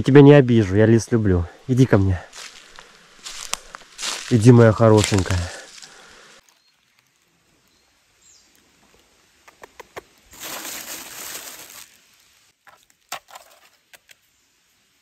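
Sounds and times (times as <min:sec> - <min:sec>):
rustling: 0:02.3 - 0:07.4, 0:10.3 - 0:14.0.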